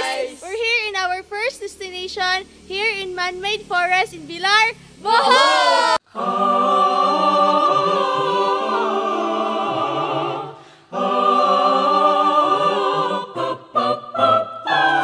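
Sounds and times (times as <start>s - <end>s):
choir singing held chords: 0.0s - 0.5s, 5.0s - 15.0s.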